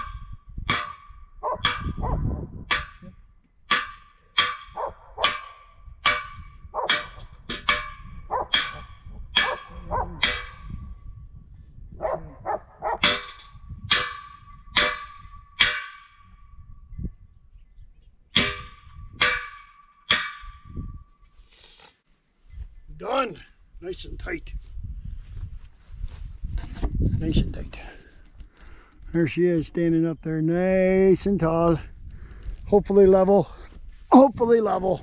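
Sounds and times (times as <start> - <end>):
hammer clanging on metal: 0.0 - 2.0, 2.7 - 10.8, 13.0 - 16.3, 18.4 - 20.7.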